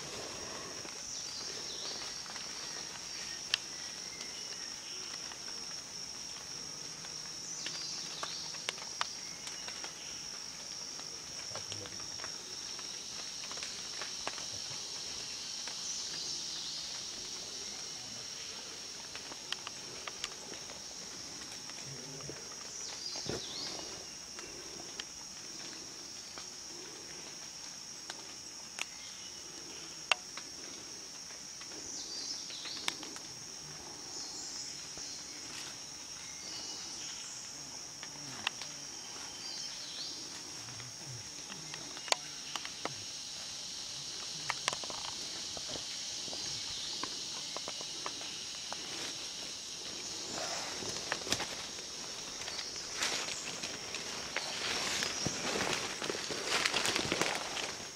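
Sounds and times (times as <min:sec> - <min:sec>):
forest insects droning: 0:00.0 - 0:57.9
footsteps through leaf litter: 0:50.4 - 0:57.9.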